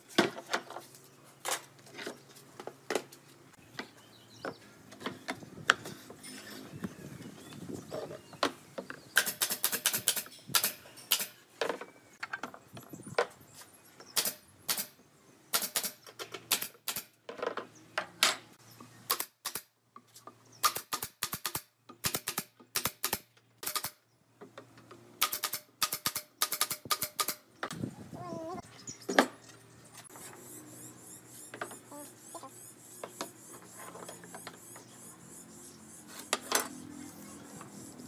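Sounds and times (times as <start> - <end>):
nail gun firing into wood: 9.2 - 11.4, 14.2 - 17.2, 19.1 - 19.7, 20.6 - 24.0, 25.2 - 27.4.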